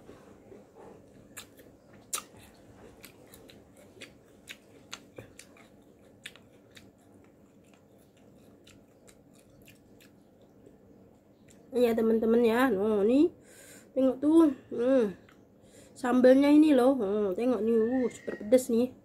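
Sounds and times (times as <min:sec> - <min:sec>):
crunchy chewing: 0:00.6 - 0:11.8
wet mouth clicks: 0:01.3 - 0:10.2.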